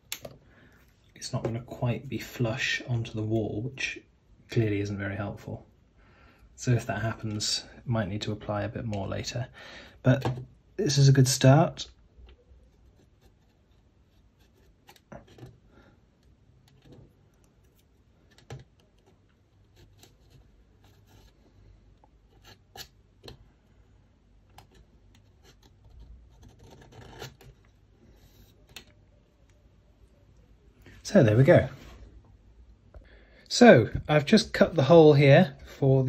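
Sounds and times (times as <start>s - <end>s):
razor blade scraping plastic: 22.3s - 23.0s, 24.5s - 27.8s.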